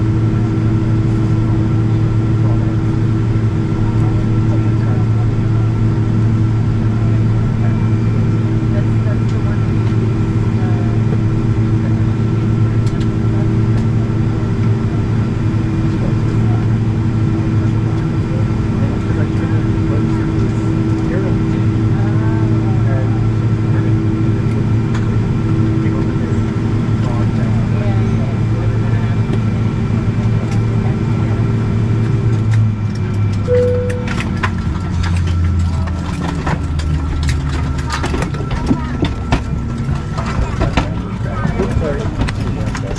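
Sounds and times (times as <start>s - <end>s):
airliner cabin hum: 0.0s - 42.9s
jet engines droning: 0.0s - 42.9s
short tone: 33.5s - 34.4s.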